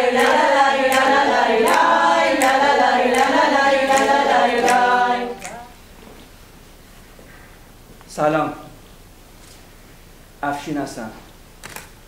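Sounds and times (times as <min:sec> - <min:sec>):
voices singing folk song: 0:00.0 - 0:05.8
sharp clap-like beat: 0:00.1 - 0:05.7.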